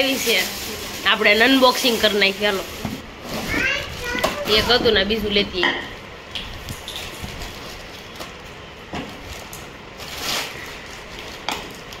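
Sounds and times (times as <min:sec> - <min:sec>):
plastic crinkle: 0:00.0 - 0:04.8, 0:06.5 - 0:12.0.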